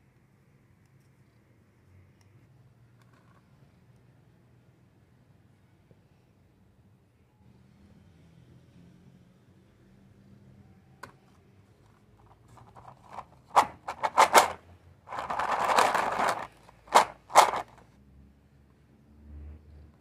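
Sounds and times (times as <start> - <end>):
cookies rattling in plastic tub: 12.4 - 17.8.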